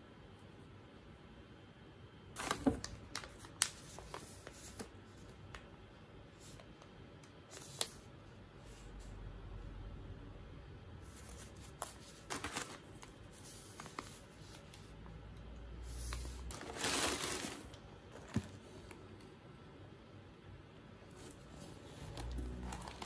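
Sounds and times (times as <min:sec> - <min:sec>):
food pouches and paper rustling: 0:02.4 - 0:05.0, 0:11.1 - 0:15.0, 0:16.0 - 0:19.0, 0:22.0 - 0:23.0.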